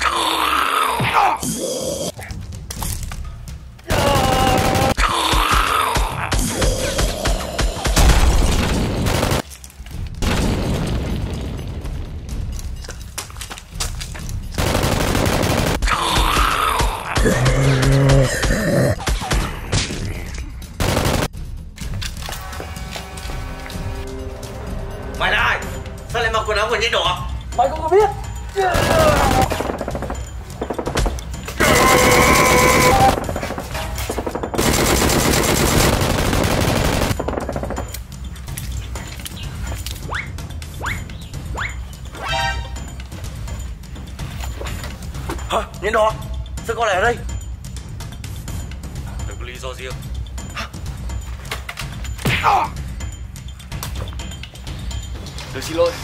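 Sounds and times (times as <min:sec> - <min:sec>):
rapid automatic gunfire: 0:04.0 - 0:05.0, 0:08.0 - 0:09.4, 0:14.6 - 0:15.9, 0:20.8 - 0:21.3, 0:31.6 - 0:33.4, 0:34.5 - 0:37.8.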